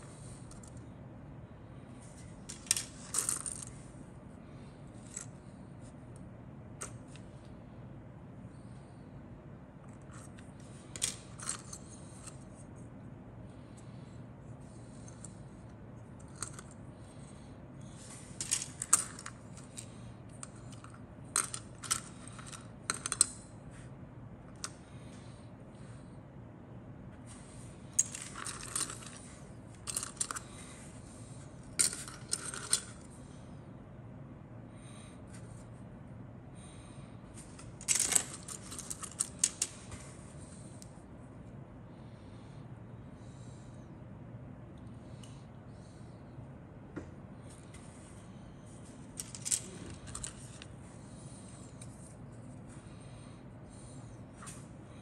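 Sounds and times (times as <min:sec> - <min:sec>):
plastic parts clicking and clattering: 0:18.4 - 0:23.5, 0:28.0 - 0:30.6, 0:31.8 - 0:33.1, 0:37.8 - 0:39.8, 0:49.2 - 0:50.7
rummaging through plastic parts: 0:28.0 - 0:30.5, 0:37.8 - 0:39.8, 0:49.2 - 0:50.7.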